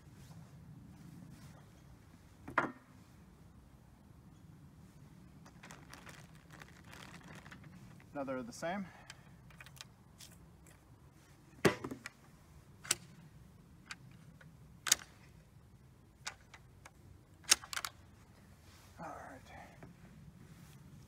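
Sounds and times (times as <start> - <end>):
sharp rifle clicks: 12.8 - 13.2, 14.8 - 15.2, 16.2 - 18.0.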